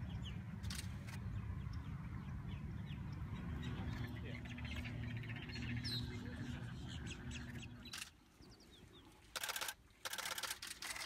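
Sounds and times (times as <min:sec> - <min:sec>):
steady low hum: 0:00.0 - 0:10.8
bird chirps: 0:01.6 - 0:09.7
camera shutter clicking: 0:09.3 - 0:11.0.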